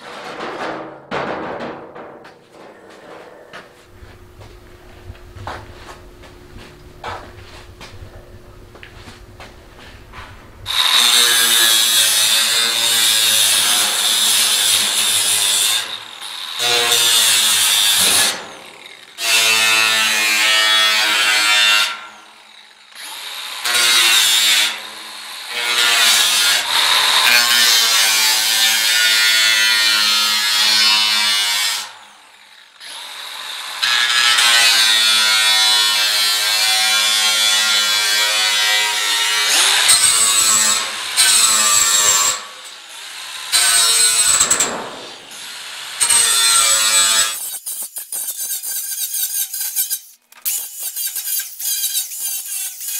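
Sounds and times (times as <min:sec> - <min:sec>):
angle grinder cutting steel: 0:10.6 - 0:52.9.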